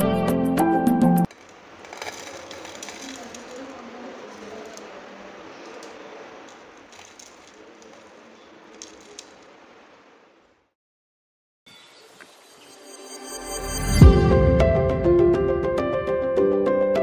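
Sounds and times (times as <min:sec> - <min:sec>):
food pieces tumbling onto a plate: 0:01.3 - 0:09.6
steady hiss: 0:01.3 - 0:10.7
small clicks: 0:05.6 - 0:09.6.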